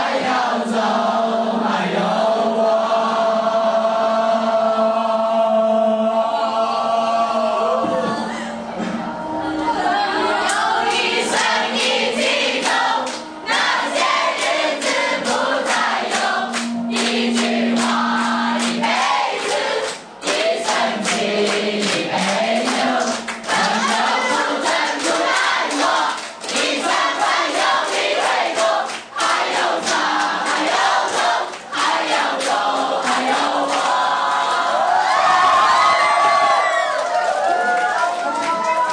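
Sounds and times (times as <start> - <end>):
group singing: 0.0 - 36.4
handclaps: 14.3 - 34.0.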